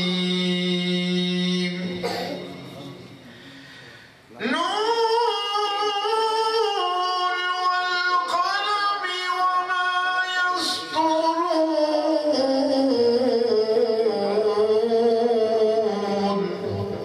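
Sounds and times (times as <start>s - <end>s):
singer breathing: 3.2s - 4.3s
person singing long notes: 4.4s - 17.0s.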